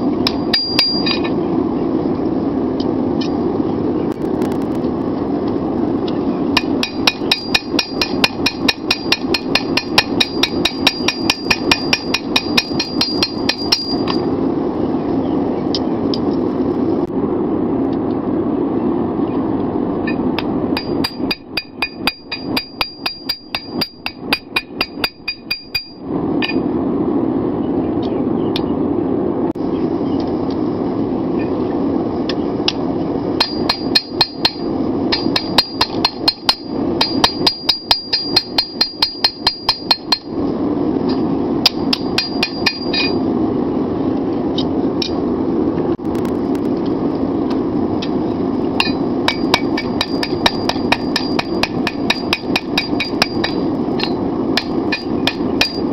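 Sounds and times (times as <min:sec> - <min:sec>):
hammer striking steel on anvil: 0:00.2 - 0:01.3, 0:06.6 - 0:14.3, 0:20.1 - 0:26.6, 0:33.4 - 0:40.3, 0:41.1 - 0:43.2, 0:48.8 - 0:55.9.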